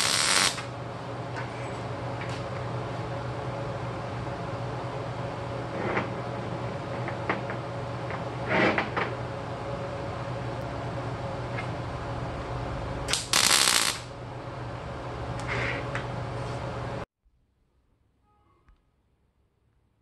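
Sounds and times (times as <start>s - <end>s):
welding arc crackling: 0.0s - 0.7s, 13.0s - 14.1s.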